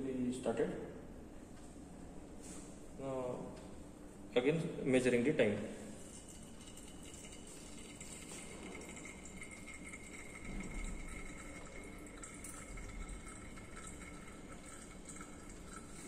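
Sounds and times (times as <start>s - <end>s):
oil trickling: 6.0s - 16.0s.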